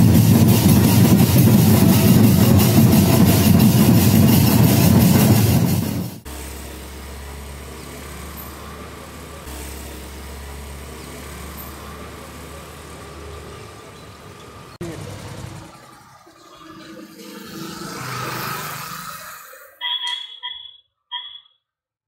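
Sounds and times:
loud music with drums: 0:00.0 - 0:06.4
street traffic hum: 0:00.0 - 0:20.5
vehicle engine idling: 0:06.2 - 0:17.1.

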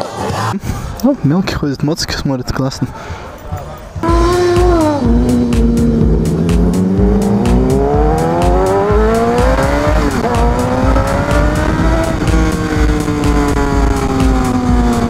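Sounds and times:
music with steady beat: 0:03.6 - 0:15.0
motorcycle engine accelerating: 0:04.0 - 0:15.0.

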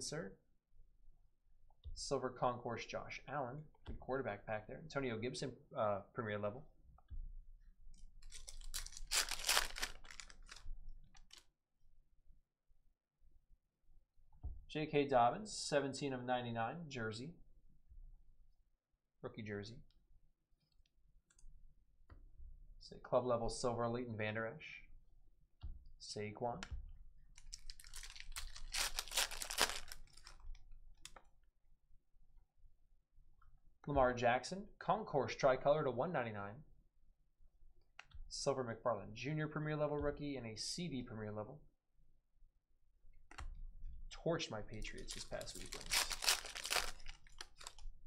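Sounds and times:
foil wrapper tearing and crinkling: 0:08.2 - 0:10.6, 0:27.4 - 0:30.4, 0:44.9 - 0:47.8.

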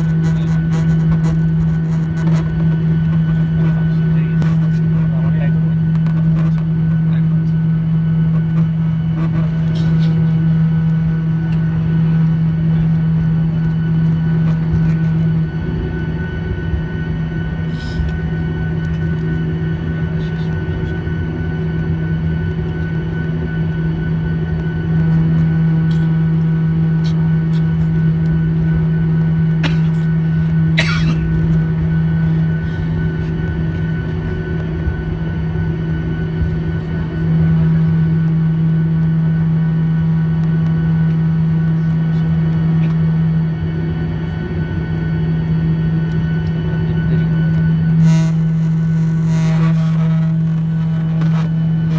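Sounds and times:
faint high whine: 0:00.0 - 0:51.9
jet engines droning in cabin: 0:00.0 - 0:51.9
low hum: 0:00.0 - 0:51.9
person coughing: 0:29.6 - 0:30.1, 0:30.7 - 0:31.4.

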